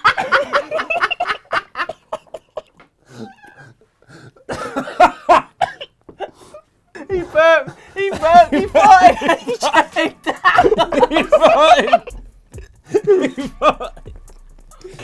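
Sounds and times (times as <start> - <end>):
men laughing hard: 0.0 - 2.9, 4.4 - 14.2
person coughing and spluttering: 4.5 - 6.0.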